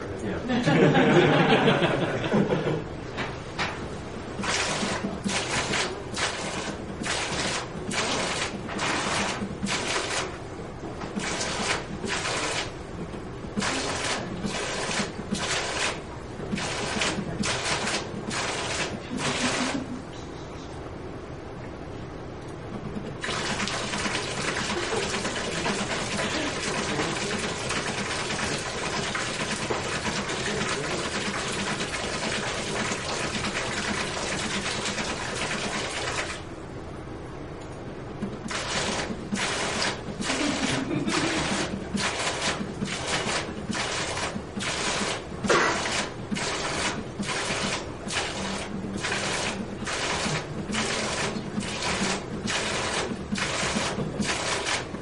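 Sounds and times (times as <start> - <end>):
valves clattering rapidly: 4.3 - 19.9, 22.8 - 36.5, 38.2 - 55.0
water splashing steadily: 4.4 - 10.4, 11.2 - 12.9, 23.1 - 36.5, 38.4 - 55.0.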